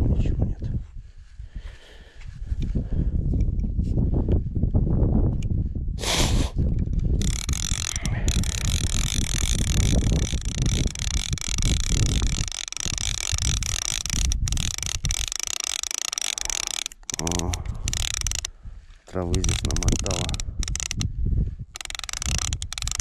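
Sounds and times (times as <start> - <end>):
fishing reel gears whirring: 6.9 - 21.1, 21.7 - 23.0.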